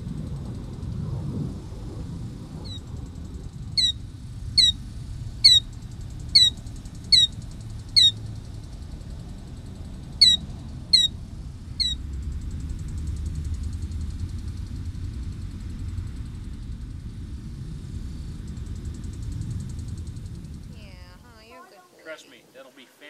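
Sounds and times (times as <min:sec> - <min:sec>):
bird calling sharp descending notes: 0:05.4 - 0:05.7, 0:06.4 - 0:07.4, 0:08.0 - 0:08.2, 0:10.2 - 0:11.1.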